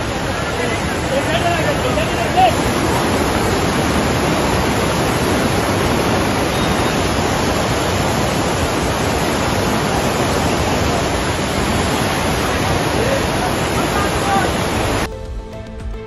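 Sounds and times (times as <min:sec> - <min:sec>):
floodwater rushing: 0:00.0 - 0:15.1.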